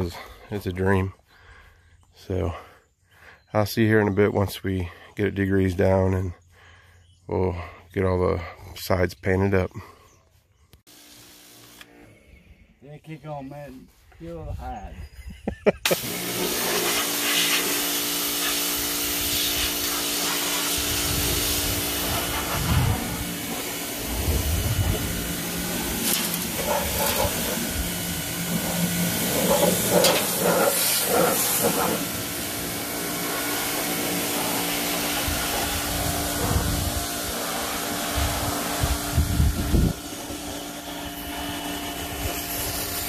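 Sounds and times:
pressure washer motor hum: 15.8s - 43.0s
water jet spraying metal: 15.8s - 43.0s.

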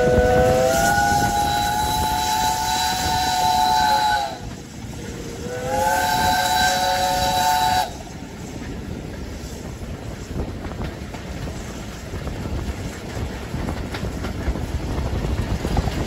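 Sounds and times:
steam locomotive whistle blasts: 0.0s - 4.6s, 5.2s - 8.2s
train running on rails: 0.0s - 16.0s.

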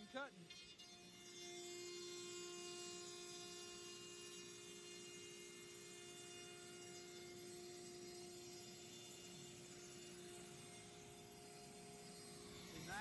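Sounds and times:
router spindle whining: 0.0s - 13.0s.

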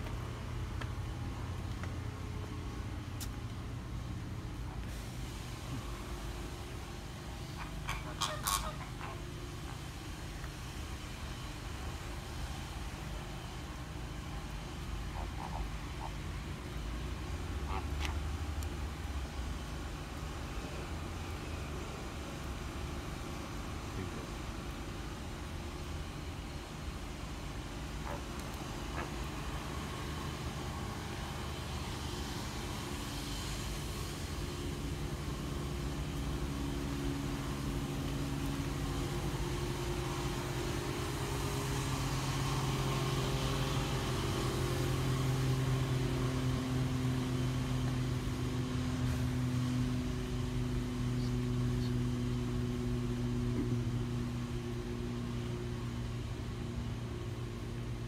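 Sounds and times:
low mechanical hum: 0.0s - 58.0s.

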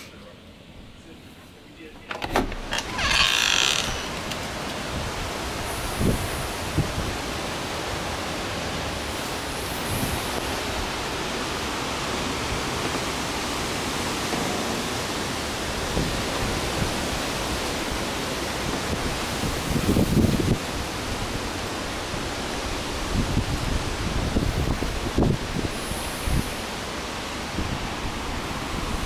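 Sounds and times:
gusty wind through trees: 0.0s - 29.0s.

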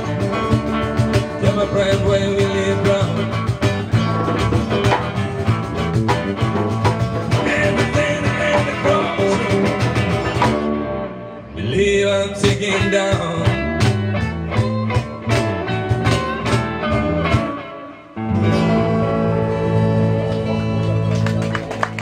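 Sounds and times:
blues band playing: 0.0s - 22.0s.

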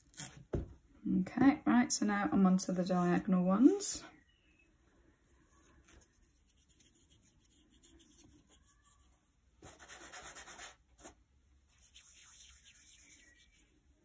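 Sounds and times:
wool fibres rustling: 2.1s - 9.3s.

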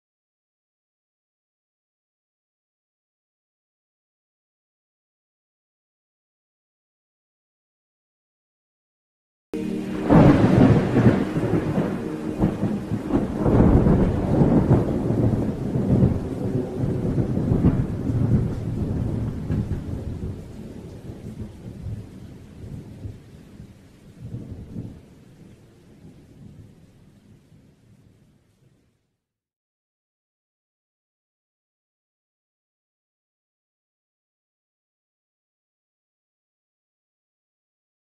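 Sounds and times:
thunder rumbling: 9.6s - 26.8s
rain: 9.6s - 29.2s.

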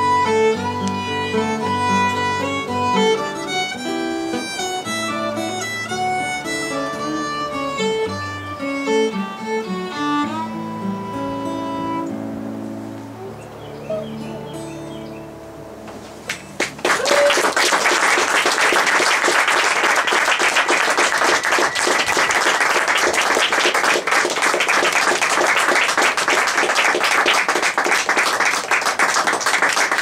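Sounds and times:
audience applauding: 16.3s - 30.0s.

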